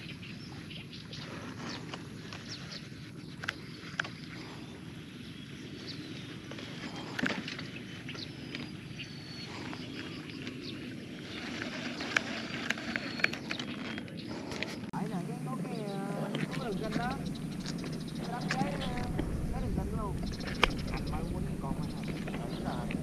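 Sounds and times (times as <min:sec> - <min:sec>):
steady low noise: 0:14.3 - 0:23.0
high bird chirps: 0:15.7 - 0:23.0.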